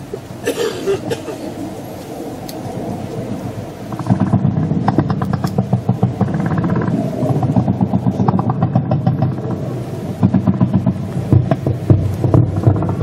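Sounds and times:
engine rumbling: 0.0 - 13.0
rapid rattling ticks: 3.8 - 13.0.

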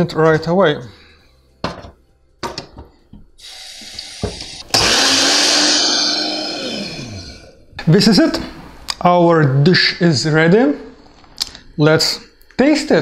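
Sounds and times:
electric blender motor: 3.4 - 7.6.

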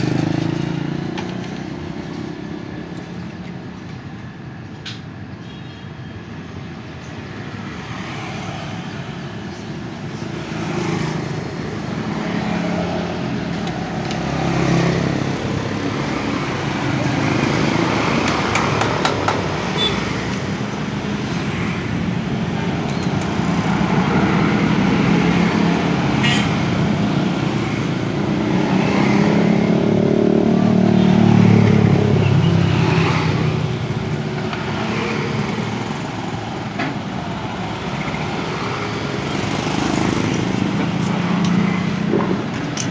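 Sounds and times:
motorcycles passing by: 0.0 - 3.9, 7.0 - 42.9.

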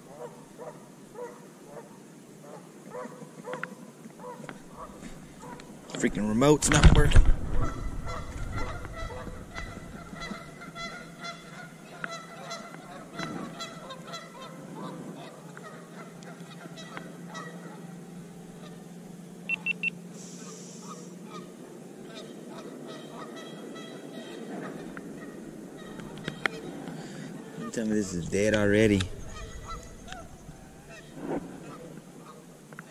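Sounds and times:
geese honking: 0.0 - 32.9
short high beeps: 19.5 - 20.0.

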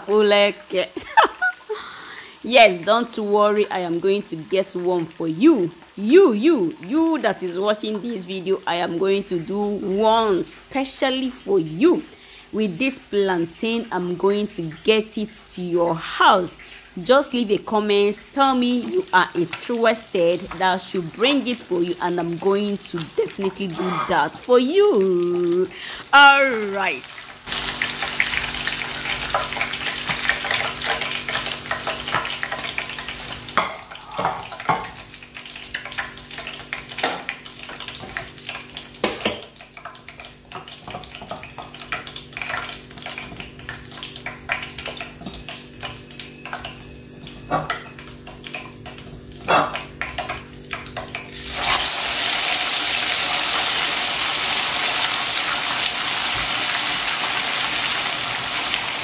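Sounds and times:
fish deep-frying sizzle: 0.0 - 59.0
hot oil sizzling: 0.0 - 59.0.

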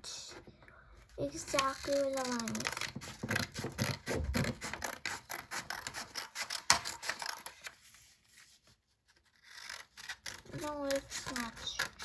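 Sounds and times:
scissors cutting paper: 1.4 - 7.7, 9.3 - 12.0.

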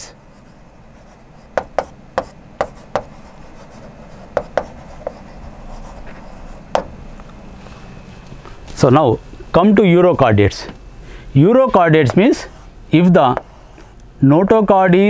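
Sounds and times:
faint room hum: 0.0 - 15.0
chalk tapping on blackboard: 1.5 - 6.1, 6.7 - 6.9, 12.0 - 12.7, 13.3 - 14.0.

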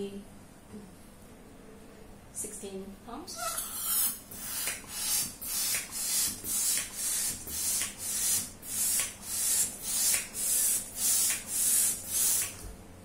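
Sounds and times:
balloon pump hissing: 3.5 - 12.6.

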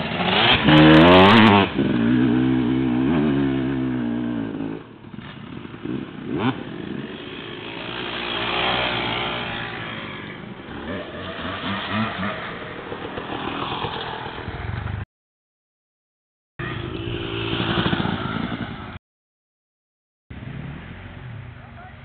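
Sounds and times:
dirt bike engines revving: 0.0 - 15.0, 16.6 - 19.0.

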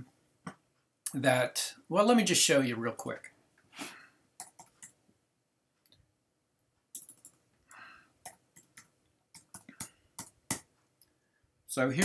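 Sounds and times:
keyboard keys clicking: 7.0 - 7.4.

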